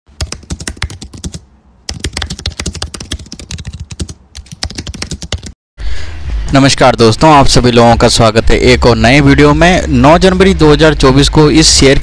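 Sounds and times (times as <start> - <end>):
rapid keyboard typing: 0.1 - 5.6.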